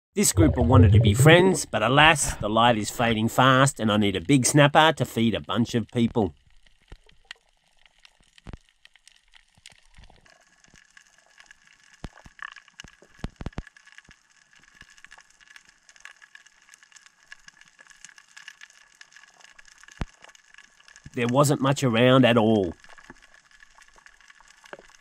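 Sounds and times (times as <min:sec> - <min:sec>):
underwater crackling clicks: 0:05.9 - 0:21.2, 0:22.7 - 0:25.0.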